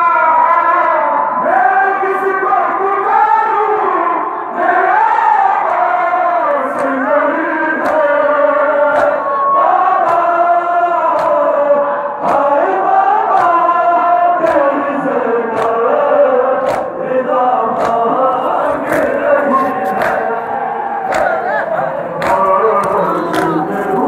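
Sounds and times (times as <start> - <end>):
men chanting in unison: 0.0 - 24.0
chest-beating slaps: 9.0 - 9.2, 11.2 - 11.4, 15.6 - 15.8, 16.6 - 16.9, 17.8 - 18.1, 18.8 - 20.3, 21.1 - 21.4.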